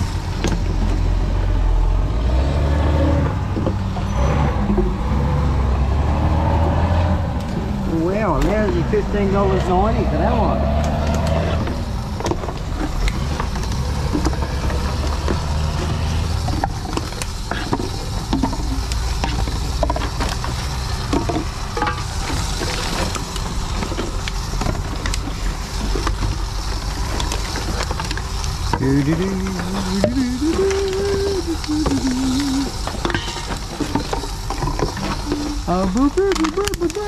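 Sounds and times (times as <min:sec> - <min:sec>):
plastic bottles crinkling and clattering: 0:00.0 - 0:01.4, 0:11.7 - 0:37.0
machine humming: 0:18.0 - 0:37.0.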